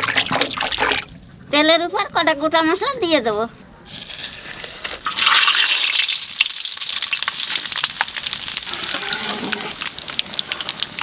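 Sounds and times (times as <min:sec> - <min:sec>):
spices sizzling in hot oil: 0:05.0 - 0:11.0.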